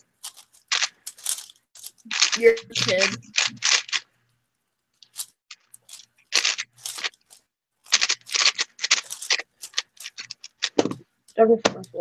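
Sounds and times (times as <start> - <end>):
speed cube clacking turns: 0.2 - 4.1, 5.0 - 7.3, 7.9 - 11.0.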